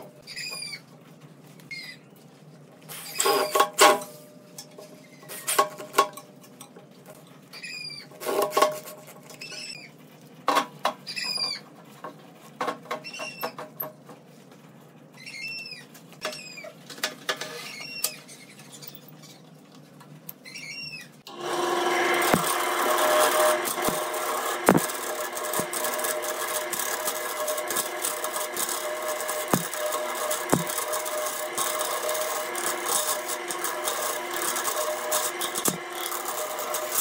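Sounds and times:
drill driving screws: 21.3 - 37.0
wood lathe humming: 21.3 - 37.0.

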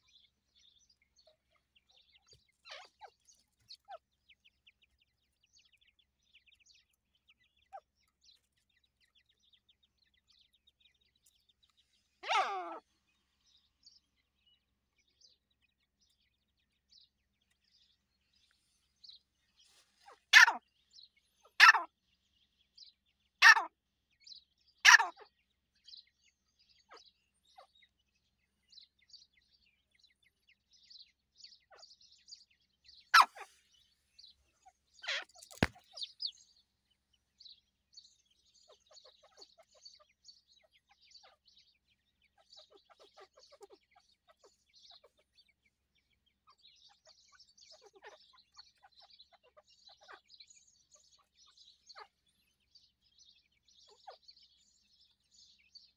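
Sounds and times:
chicks peeping: 20.1 - 20.6, 34.6 - 36.4, 46.5 - 52.7.

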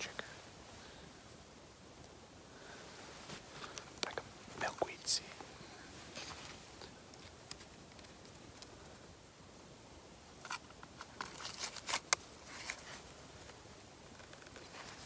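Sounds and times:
crinkling rustles: 2.9 - 8.9, 10.4 - 15.0
light clicks of handled gear: 3.2 - 5.5, 6.1 - 9.0, 10.4 - 15.0.

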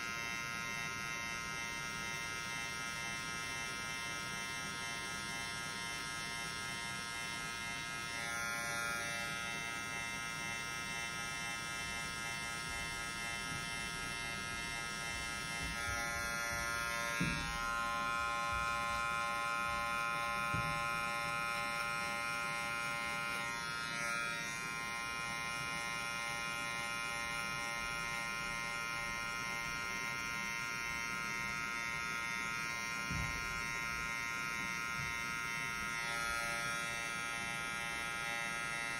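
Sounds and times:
hair clipper buzzing: 0.0 - 38.9.

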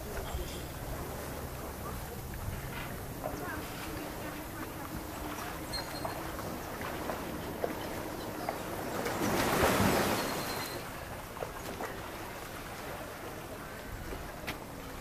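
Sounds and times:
waves splashing around pier: 0.0 - 15.0.

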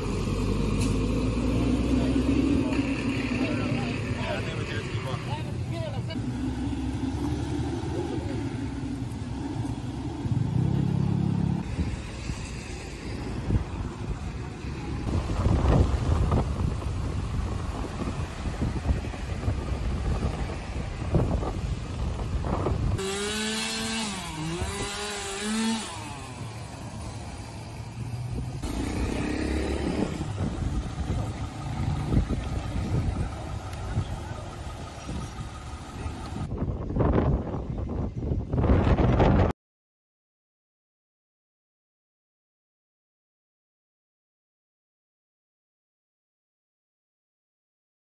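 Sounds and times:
vehicle engine passing: 0.0 - 36.5
road traffic on wet street: 0.0 - 38.6
small engine revving: 23.0 - 26.8, 28.6 - 34.2.

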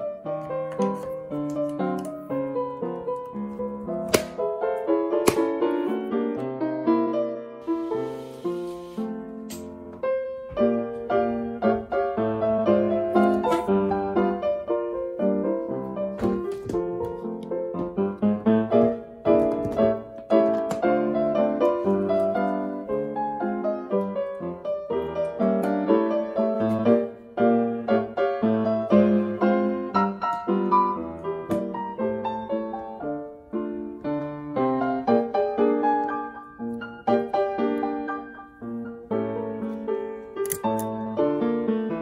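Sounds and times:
ragtime piano: 0.0 - 42.0.

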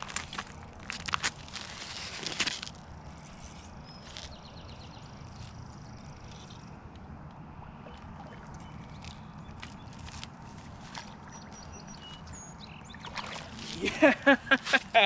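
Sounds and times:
low steady rumble: 0.0 - 14.7
fish splashing at water surface: 12.9 - 13.9.

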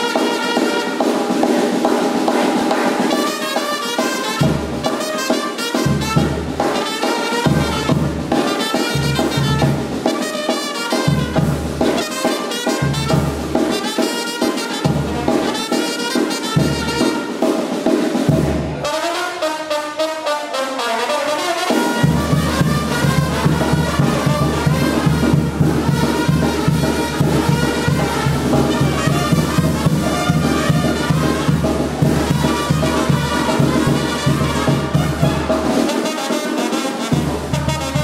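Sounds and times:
brass band dance music: 0.0 - 38.0
heavy bass beat: 22.1 - 35.6.

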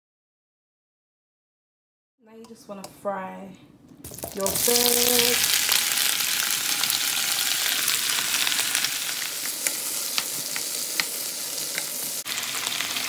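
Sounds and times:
vegetables sizzling in oil: 4.0 - 13.0
wooden spoon clicking on pan: 9.6 - 12.0.

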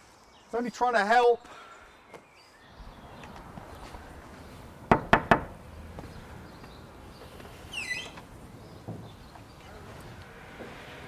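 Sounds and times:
knocking on door: 4.9 - 5.5.

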